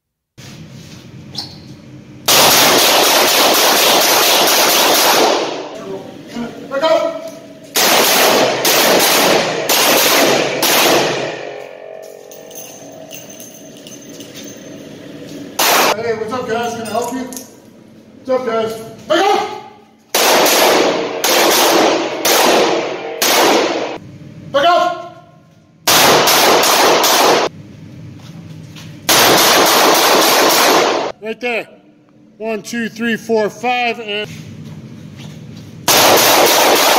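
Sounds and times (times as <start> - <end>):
revolver shots echoing indoors: 1.3 - 6.3, 7.0 - 16.2, 19.3 - 24.2, 24.9 - 28.0, 29.0 - 31.2, 35.8 - 36.9.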